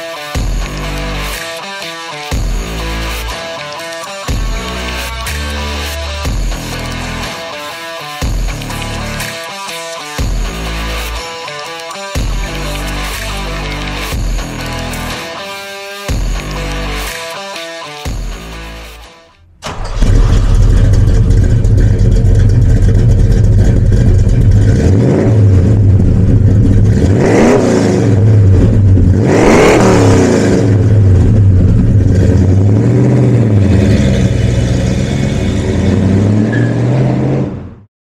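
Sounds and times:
engine revving: 0:00.0 - 0:19.0, 0:19.6 - 0:37.9
car engine idling loud: 0:19.6 - 0:36.3.

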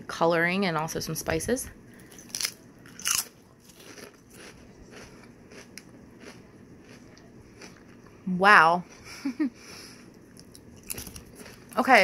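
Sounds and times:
potato chip crunching: 0:02.0 - 0:08.0, 0:10.3 - 0:12.0
crunchy chewing: 0:02.0 - 0:08.2, 0:10.1 - 0:11.9.

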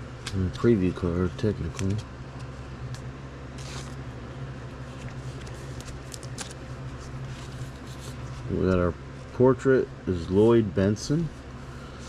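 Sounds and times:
steady low hum: 0:00.0 - 0:12.0
cards rustling: 0:00.2 - 0:04.1, 0:04.8 - 0:08.8.

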